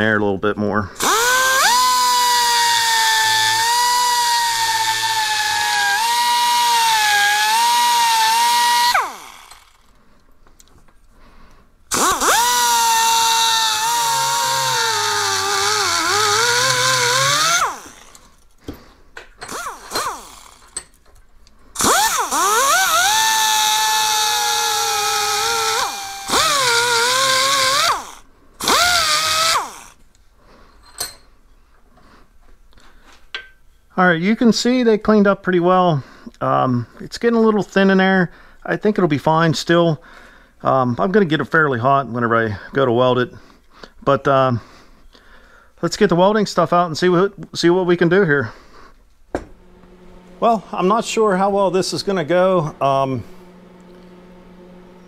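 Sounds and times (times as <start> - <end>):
rotary grinder whining on metal: 1.0 - 10.0, 11.9 - 18.5, 19.4 - 20.9, 21.8 - 30.0, 49.5 - 55.0.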